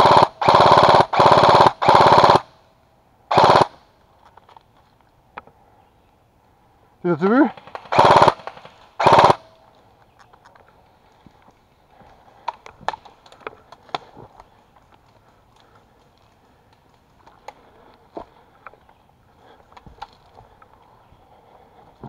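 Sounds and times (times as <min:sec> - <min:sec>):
airsoft rifle burst: 0:03.3 - 0:03.8, 0:07.6 - 0:09.5
footsteps on forest floor: 0:09.6 - 0:22.0.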